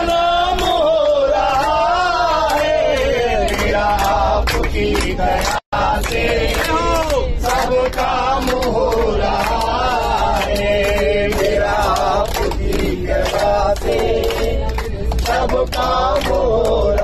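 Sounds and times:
group singing in unison: 0.0s - 17.0s
people clapping in time: 0.0s - 17.0s.

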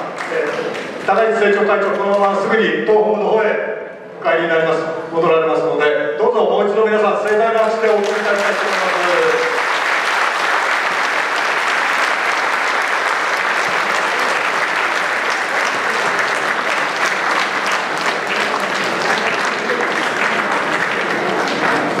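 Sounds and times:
audience applauding: 7.6s - 22.0s.

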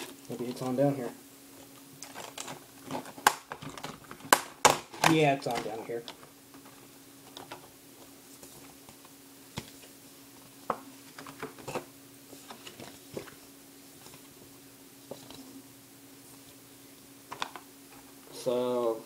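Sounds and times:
low electrical hum: 0.0s - 19.0s
paper packaging rustling: 2.0s - 7.7s, 11.0s - 14.3s.

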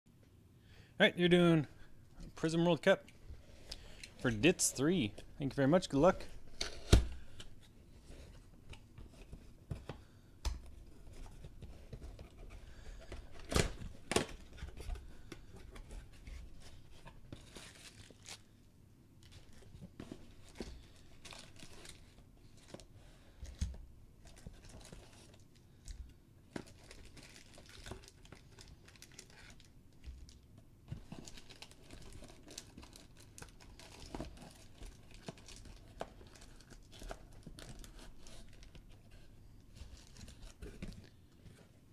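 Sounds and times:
foil packs crinkling: 17.4s - 18.5s, 24.3s - 30.4s, 31.0s - 38.8s.

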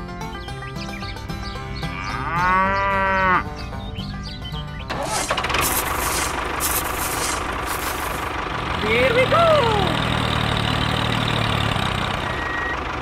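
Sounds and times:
background music: 0.0s - 6.8s
cow mooing: 1.8s - 3.5s
rough engine-like running noise: 3.0s - 13.0s.

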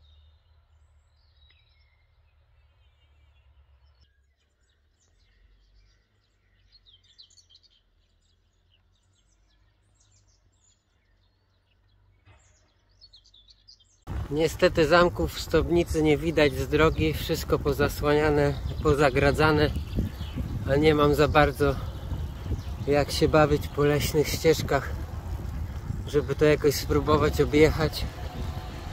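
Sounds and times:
birds chirping: 0.0s - 28.9s
low steady rumble: 14.1s - 28.9s.

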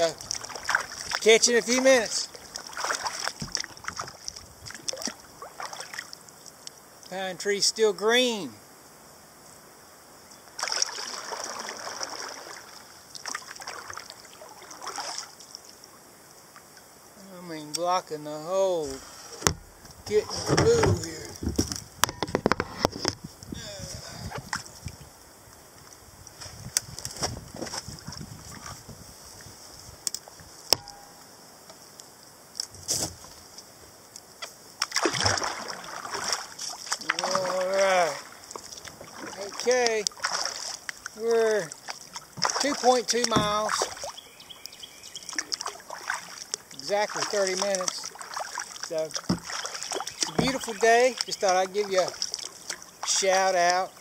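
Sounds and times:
paddle splashing in water: 0.0s - 6.2s, 10.5s - 15.8s, 19.0s - 23.2s, 34.8s - 53.8s
water dripping off paddle: 0.2s - 7.2s, 34.8s - 53.3s
man wordless vocal sound: 37.0s - 38.3s.

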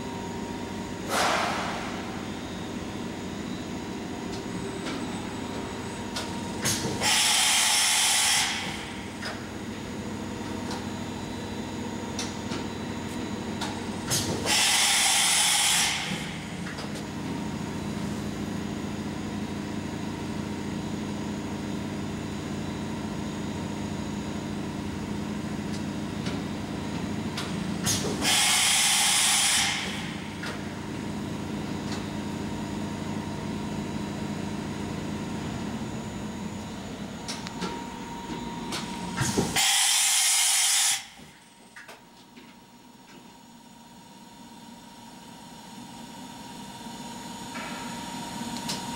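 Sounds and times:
machine hum with high tone: 0.0s - 48.9s
air hiss bursts: 28.2s - 30.2s, 39.6s - 41.0s.

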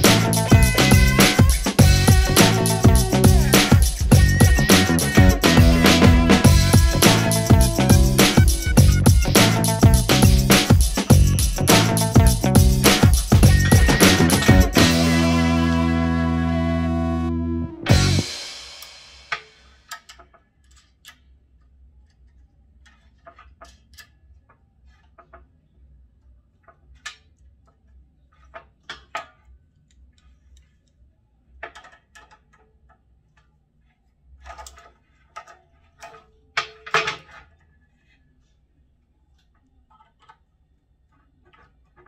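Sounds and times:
small clicks of metal and plastic parts: 19.8s - 25.6s, 26.6s - 31.0s, 31.6s - 33.6s, 34.4s - 37.7s, 39.3s - 42.0s.

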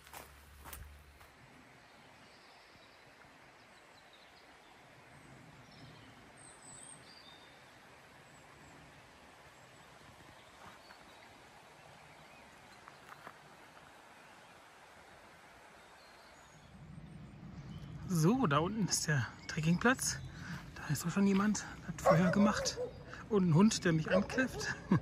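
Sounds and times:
faint outdoor hiss: 0.0s - 25.0s.

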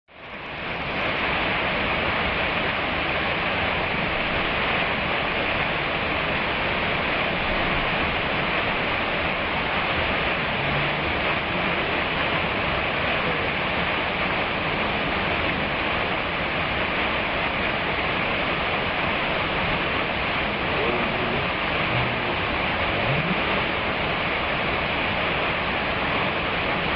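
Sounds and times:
waterfall rushing: 0.2s - 26.9s.

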